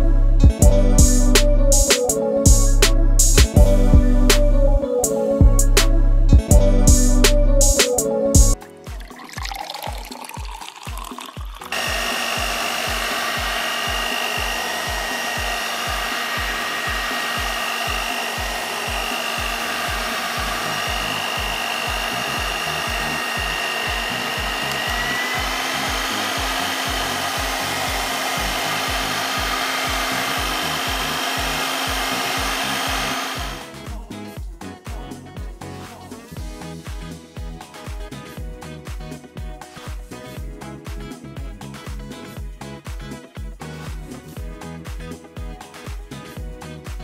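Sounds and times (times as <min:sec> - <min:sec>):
low music beat: 0:00.4 - 0:04.8, 0:05.4 - 0:08.6, 0:11.6 - 0:34.0
blender whining: 0:09.6 - 0:33.9.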